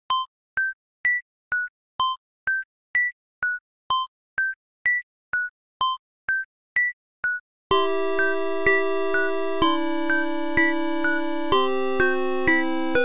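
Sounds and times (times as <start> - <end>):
electronic three-note background music: 7.7 - 13.0.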